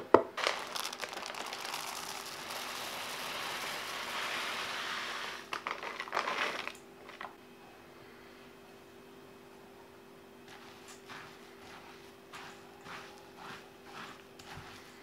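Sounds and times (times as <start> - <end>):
oats pouring into glass bowl: 0.4 - 7.3, 10.5 - 15.0
plastic bag crinkling: 0.4 - 7.4.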